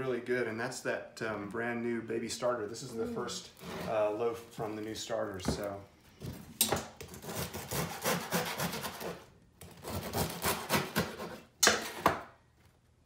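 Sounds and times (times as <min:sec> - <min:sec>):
bread knife sawing crusty bread: 0:07.1 - 0:11.5.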